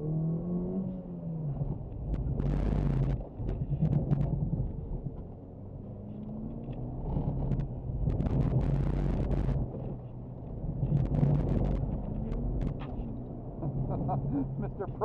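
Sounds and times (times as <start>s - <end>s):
tyre and road noise: 0.8s - 15.0s
car engine revving: 10.7s - 15.0s.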